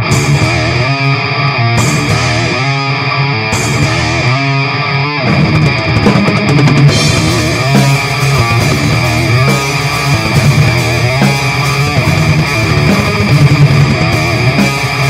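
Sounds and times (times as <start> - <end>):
drum kit playing: 0.0 - 15.0
electric guitar riff: 0.0 - 15.0
cymbals: 6.9 - 15.0.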